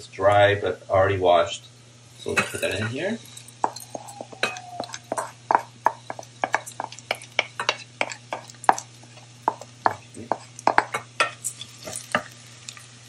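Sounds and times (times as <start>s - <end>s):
wooden spoon knocking ceramic bowl: 3.6s - 8.9s, 9.5s - 11.4s.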